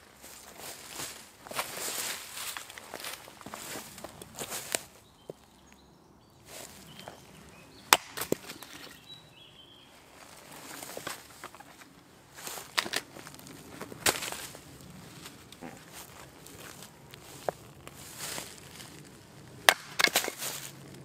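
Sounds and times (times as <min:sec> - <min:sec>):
hatchet chopping wood: 0:07.9 - 0:08.8, 0:19.6 - 0:20.4.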